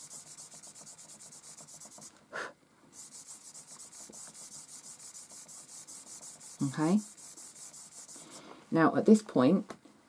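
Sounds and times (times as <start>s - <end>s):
fingertip rubbing charcoal on paper: 0.0s - 2.1s, 3.0s - 8.4s.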